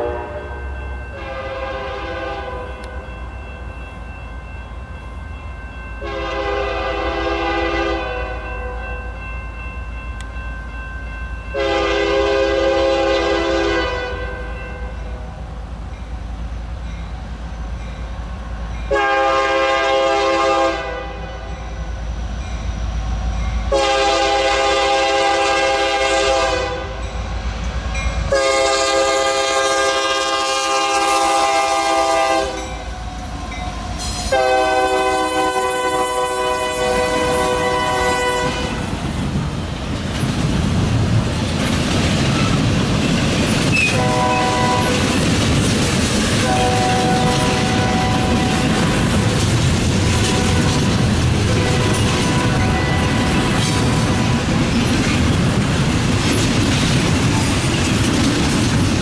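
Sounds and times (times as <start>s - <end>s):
locomotive air horn blasts: 0.0s - 2.9s, 6.0s - 8.8s, 11.6s - 14.9s, 18.9s - 21.6s, 23.7s - 27.0s, 28.3s - 32.9s, 34.2s - 38.9s, 43.9s - 45.0s, 46.4s - 48.6s, 50.2s - 50.8s, 51.5s - 53.5s
locomotive rumble: 0.0s - 59.0s
freight cars clickety-clack: 36.9s - 59.0s.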